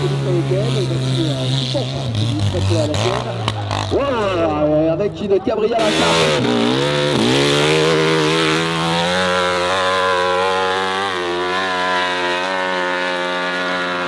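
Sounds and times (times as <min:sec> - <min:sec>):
motorcycle engine at high revs: 0:00.0 - 0:04.8, 0:05.7 - 0:14.0.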